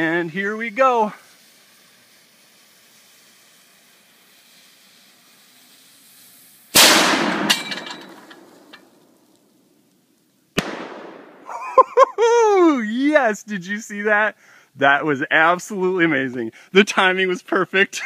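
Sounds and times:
burning fuse hissing: 0.0 - 10.6
distant explosion bang: 6.8 - 7.6
cannon blast: 6.8 - 8.5, 10.6 - 11.5.

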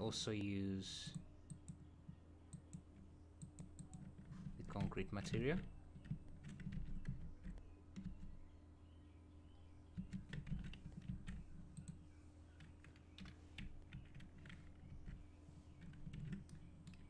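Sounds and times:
low steady hum: 0.0 - 17.0
computer mouse clicking: 1.1 - 1.9, 2.5 - 8.2, 10.0 - 12.0, 15.8 - 17.0
keyboard keys clicking: 10.0 - 12.0, 15.8 - 17.0.

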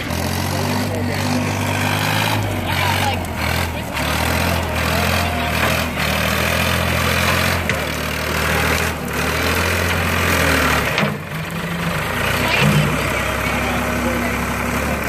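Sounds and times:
tractor diesel engine running: 0.0 - 15.0
burning brush crackling: 0.5 - 15.0.

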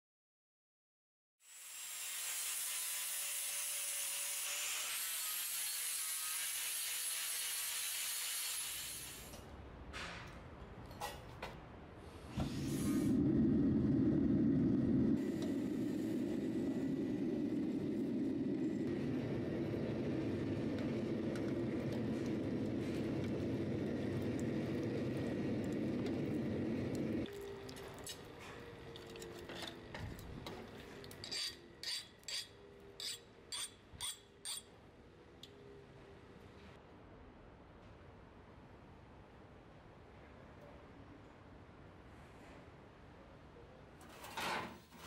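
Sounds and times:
angle grinder on metal: 1.4 - 9.3
burning oil flame rumble: 12.1 - 31.2.

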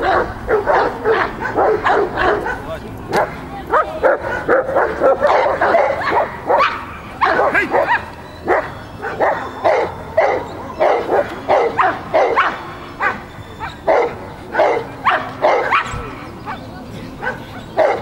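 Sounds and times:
dog barking excitedly: 0.0 - 16.6, 17.2 - 18.0.

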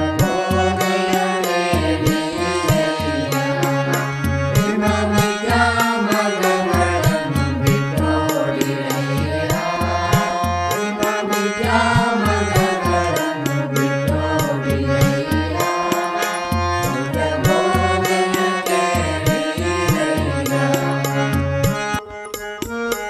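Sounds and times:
steady drum beat: 0.0 - 21.8
repeating low bass notes: 0.0 - 22.0.

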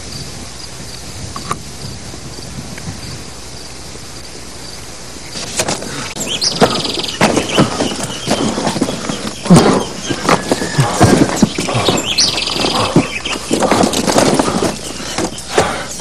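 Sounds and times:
bird chirp: 0.0 - 16.0
crickets chirping: 0.0 - 16.0
footsteps crunching through brush: 5.3 - 16.0.

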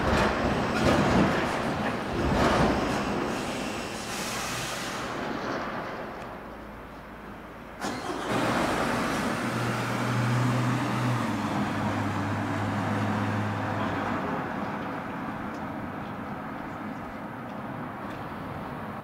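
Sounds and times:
vehicle engine passing by: 7.8 - 14.8.

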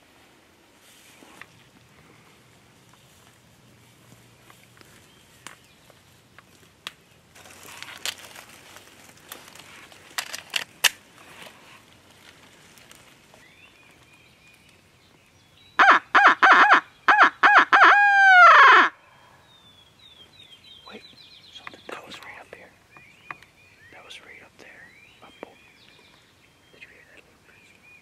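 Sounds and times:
footsteps in dry leaves: 2.9 - 14.2
owl call hooting: 15.8 - 19.2.

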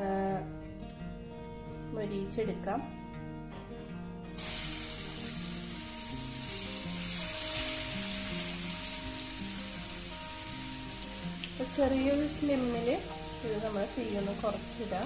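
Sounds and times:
garlic sizzling in oil: 4.4 - 15.0.

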